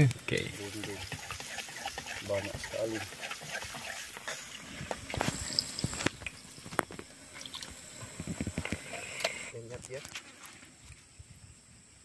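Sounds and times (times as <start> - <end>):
food squelching in a pan: 0.0 - 9.5
faint high hiss: 0.0 - 12.0
utensil clicking against pan: 0.8 - 4.3.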